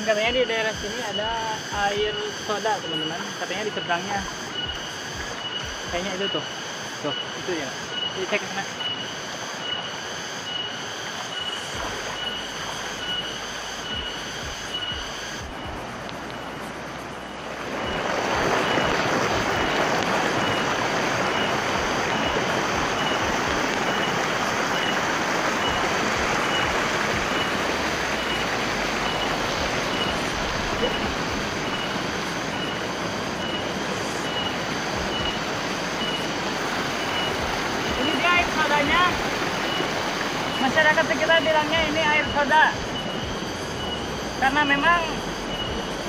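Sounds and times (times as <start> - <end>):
faint high chirp: 1.0 - 23.3, 23.9 - 41.0, 41.7 - 46.0
water rushing over rocks: 10.8 - 46.0.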